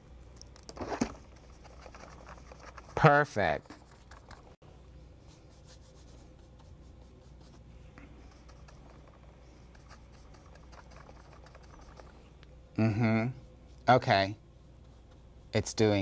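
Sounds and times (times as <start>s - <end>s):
faint steady hum: 0.0s - 16.0s
paintbrush brushing: 1.3s - 12.4s.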